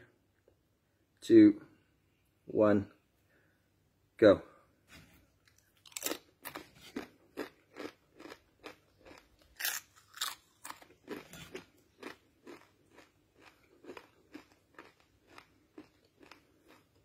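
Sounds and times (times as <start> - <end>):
man crunching tortilla chips: 5.4 - 17.0.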